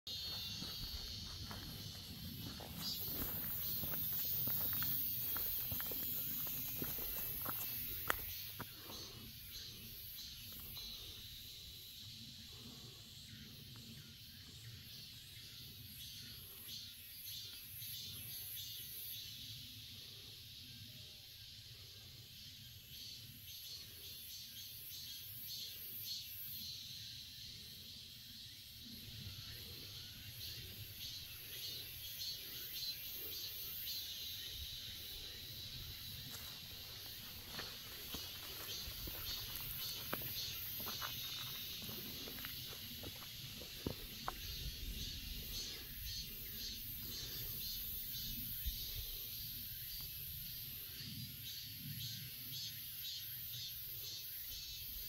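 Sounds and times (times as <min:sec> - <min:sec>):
insects shrilling: 0:00.1 - 0:12.1, 0:29.2 - 0:50.2.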